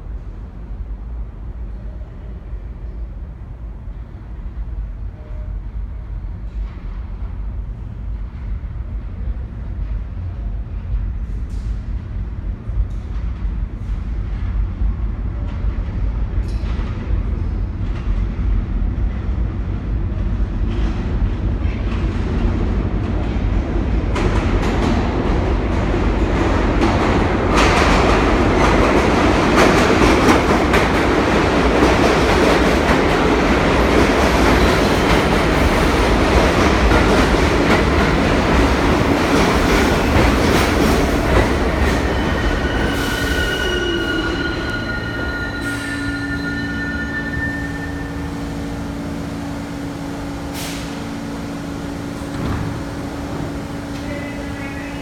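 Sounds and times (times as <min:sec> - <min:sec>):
train wheels rumbling on rails: 0:00.0 - 0:55.0
high-pitched squealing tones: 0:41.9 - 0:48.4.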